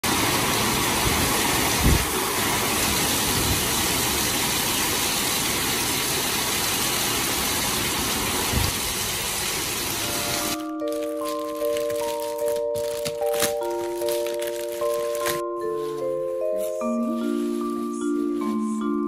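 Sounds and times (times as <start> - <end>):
heavy rain: 0.0 - 12.5.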